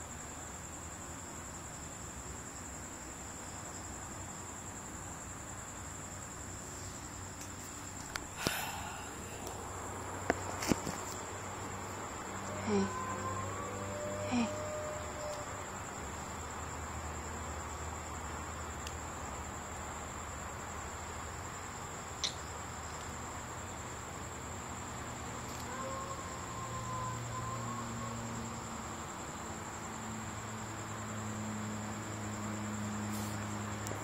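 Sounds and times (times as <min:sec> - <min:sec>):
faint hiss: 0:00.0 - 0:25.8, 0:26.4 - 0:34.0
high-pitched insect trill: 0:00.0 - 0:34.0.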